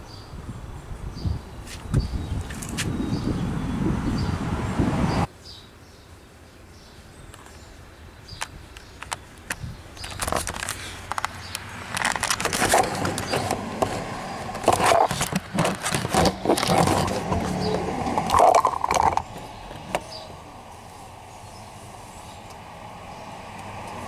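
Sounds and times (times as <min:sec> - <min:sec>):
clicks knocks and rustling: 0:08.4 - 0:20.1.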